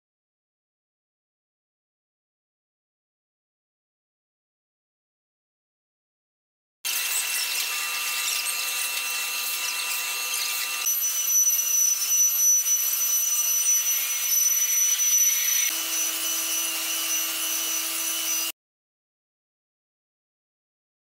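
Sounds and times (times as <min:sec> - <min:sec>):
router spindle whine: 0:06.9 - 0:18.5.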